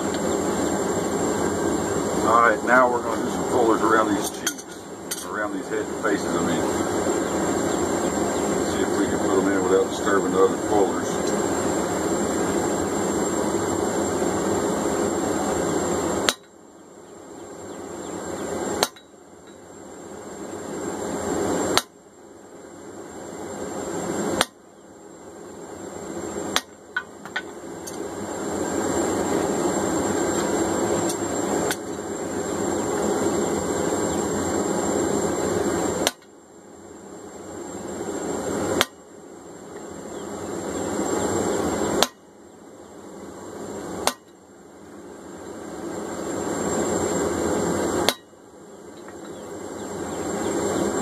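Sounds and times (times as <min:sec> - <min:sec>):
steady rushing noise: 0:00.0 - 0:16.6, 0:17.5 - 0:21.9, 0:25.1 - 0:42.4, 0:43.0 - 0:51.0
hammer blows on hot steel: 0:18.7 - 0:19.6, 0:21.7 - 0:22.0, 0:24.2 - 0:24.6, 0:41.8 - 0:42.3.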